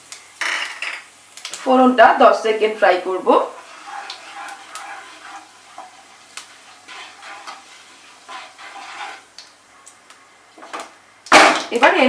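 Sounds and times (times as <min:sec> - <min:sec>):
seeds sizzling in hot oil: 0:00.0 - 0:12.0
wooden spatula scraping pan: 0:03.0 - 0:09.4.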